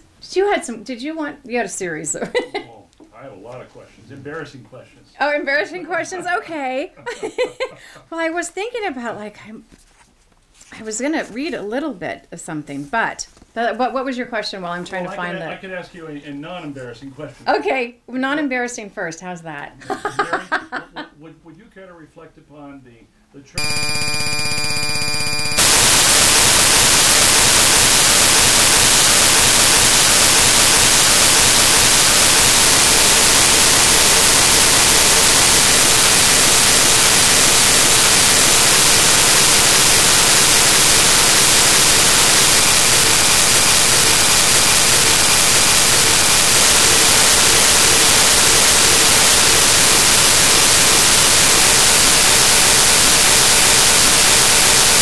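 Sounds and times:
loud static hiss: 0:23.6 - 0:55.0.

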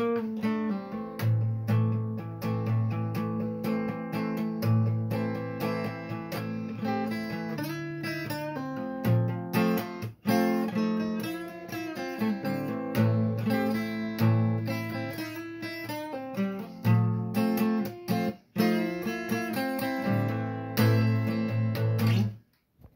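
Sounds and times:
acoustic guitar chords: 0:00.0 - 0:22.4.

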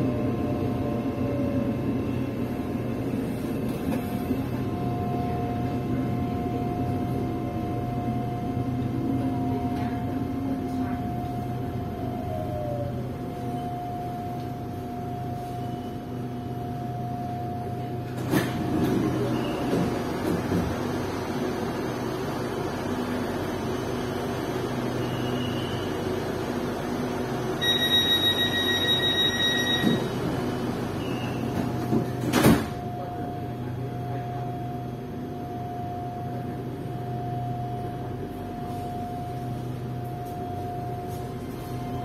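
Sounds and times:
train cabin humming: 0:00.0 - 0:24.8
door warning chime beeping: 0:27.6 - 0:30.1.

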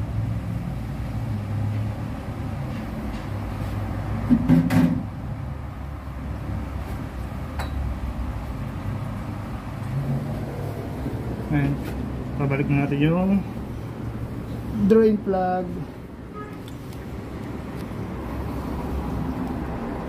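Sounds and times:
loud knock and clatter: 0:04.2 - 0:05.1.

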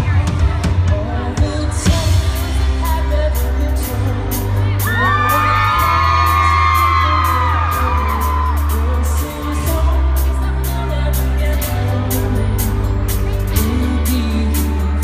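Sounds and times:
live rock band playing: 0:00.0 - 0:15.0
crowd screaming: 0:04.8 - 0:09.8.

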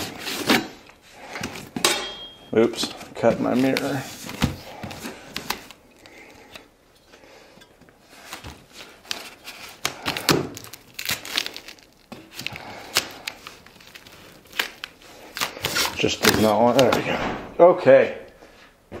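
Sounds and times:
blade slitting packing tape: 0:09.0 - 0:16.4.

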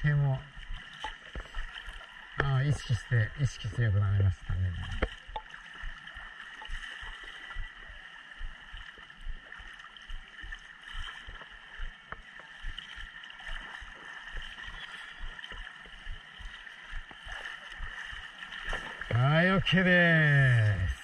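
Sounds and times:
water lapping against camera: 0:00.0 - 0:21.0
swimmer splashing: 0:04.6 - 0:19.2.

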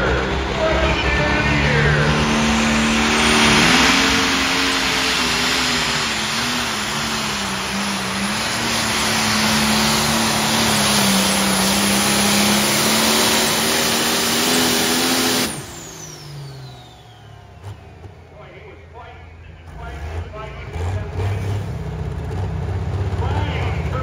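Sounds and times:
engine whine winding down: 0:00.0 - 0:18.4
diesel tractor engine roaring: 0:00.0 - 0:24.0.

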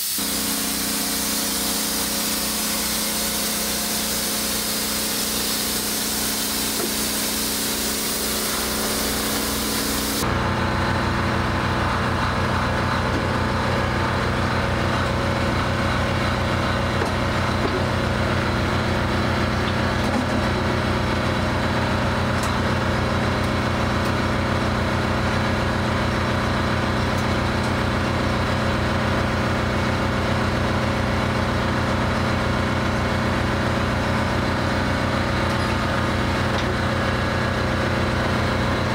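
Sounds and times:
hiss: 0:00.0 - 0:10.2
air compressor engine running: 0:00.0 - 0:38.9.

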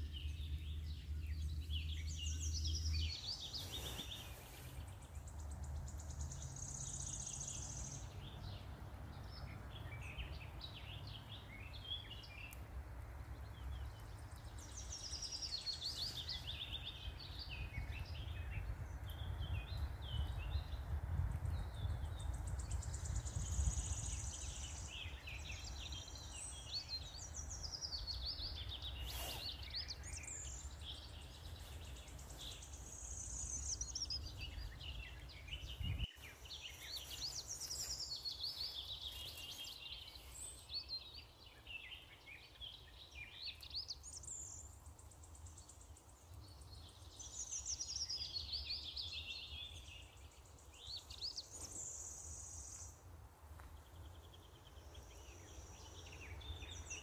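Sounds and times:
songbirds chirping and trilling: 0:00.0 - 0:57.0.

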